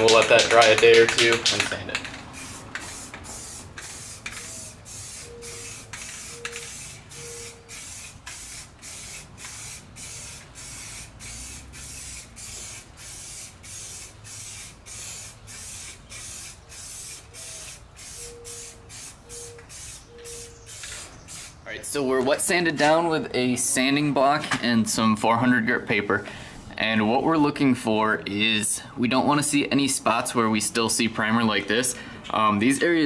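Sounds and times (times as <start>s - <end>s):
spray primer hissing: 0.0s - 21.6s.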